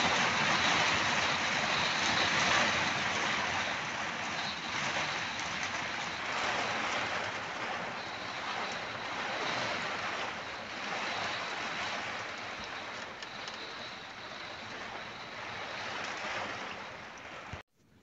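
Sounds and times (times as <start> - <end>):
heavy rain and wind on vehicle: 0.0 - 17.6
faint drop ticks: 12.6 - 14.6.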